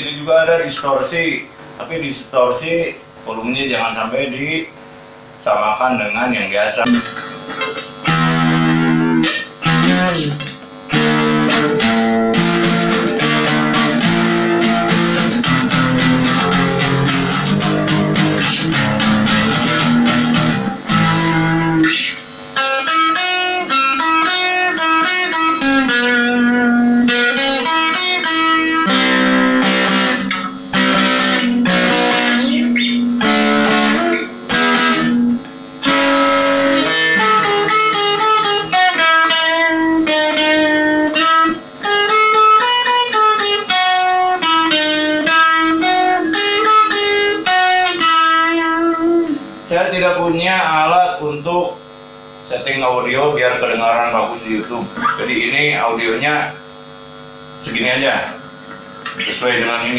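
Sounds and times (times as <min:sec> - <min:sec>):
person talking: 0:00.0 - 0:04.8, 0:05.4 - 0:07.0, 0:49.7 - 0:51.8, 0:52.4 - 0:56.6, 0:57.6 - 0:58.4, 0:59.2 - 0:59.9
guitar strummed chords: 0:06.6 - 0:59.9
picked guitar melody: 0:06.8 - 0:59.9.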